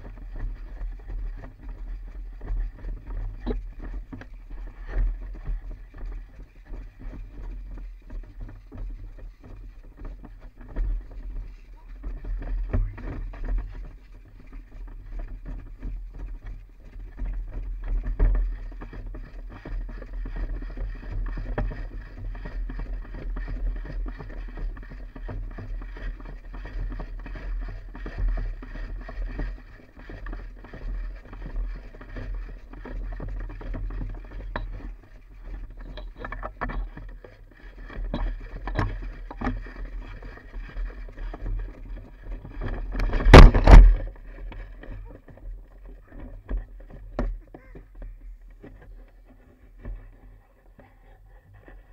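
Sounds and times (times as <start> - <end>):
camera handling and wind noise: 42.9 - 44.0.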